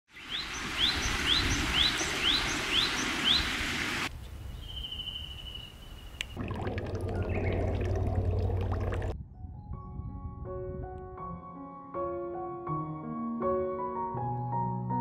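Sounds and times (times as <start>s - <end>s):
bird chirping: 0.1s - 3.5s, 4.2s - 6.4s
running water: 0.2s - 4.1s, 6.4s - 9.2s.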